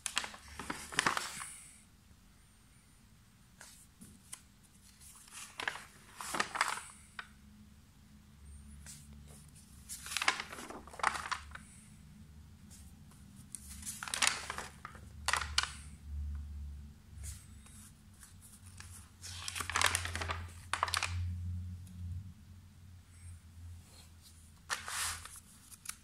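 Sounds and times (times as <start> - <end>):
paper pages turning: 0.0 - 1.7, 3.6 - 7.3, 8.8 - 11.9, 12.7 - 15.9, 17.2 - 21.3, 24.6 - 26.0.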